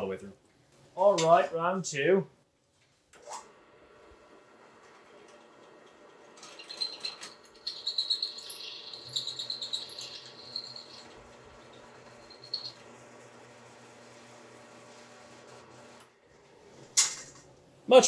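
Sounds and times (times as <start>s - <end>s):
drill press running: 3.4s - 16.6s.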